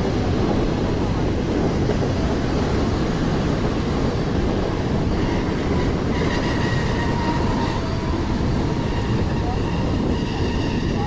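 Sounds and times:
train wheels rumbling on track: 0.0s - 11.0s
faint high squeal: 5.1s - 11.0s.

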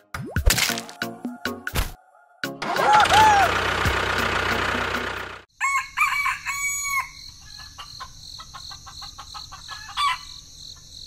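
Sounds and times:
rooster crowing: 2.0s - 3.6s, 5.6s - 8.0s, 9.5s - 10.4s
chicken clucking: 7.4s - 10.3s.

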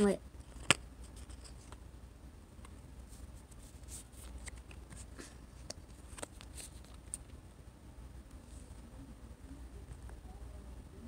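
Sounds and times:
low steady hum: 0.0s - 11.0s
fingers handling paper stickers: 2.6s - 7.4s.

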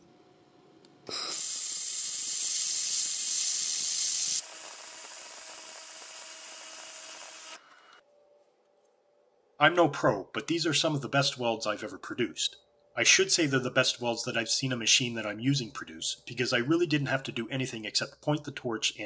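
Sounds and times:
laser welder hissing: 1.0s - 8.0s.

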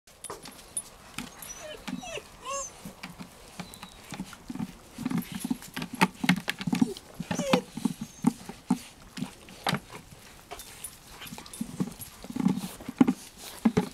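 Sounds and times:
puppies whining: 0.4s - 5.6s, 6.6s - 8.8s
knocking and clattering on plastic: 11.7s - 13.9s.

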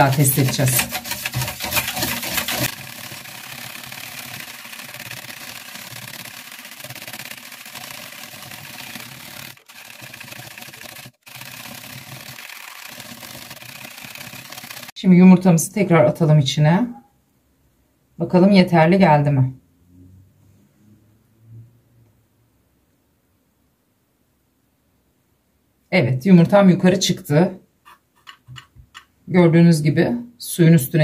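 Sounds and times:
whisk swishing brine in jug: 0.0s - 14.9s.

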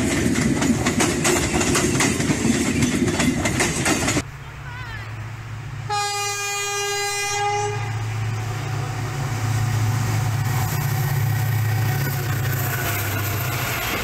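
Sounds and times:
locomotive horn blast: 5.8s - 8.4s.

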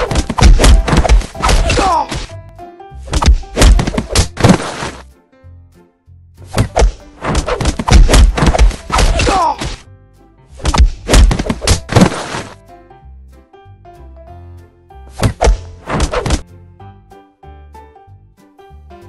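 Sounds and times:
punch and kick impacts: 0.0s - 2.3s, 3.1s - 5.0s, 6.5s - 9.8s, 10.6s - 12.6s, 15.2s - 16.4s
background music: 0.0s - 19.0s.

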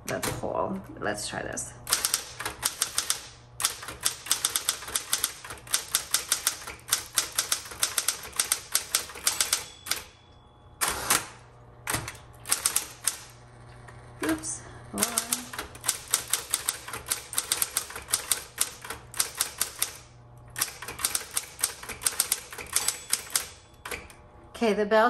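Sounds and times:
typewriter motor hum: 1.8s - 10.2s, 10.8s - 24.2s
typewriter key strikes: 1.9s - 10.1s, 15.0s - 20.0s, 20.6s - 24.1s.

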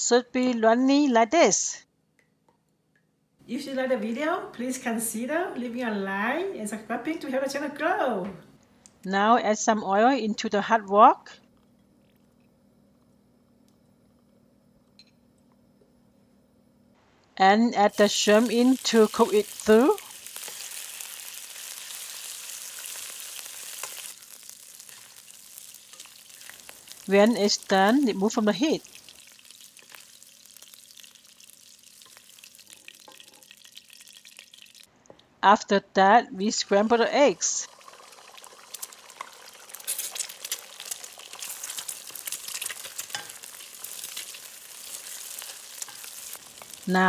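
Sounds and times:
shrimp sizzling in oil: 17.9s - 34.9s, 36.8s - 47.0s.

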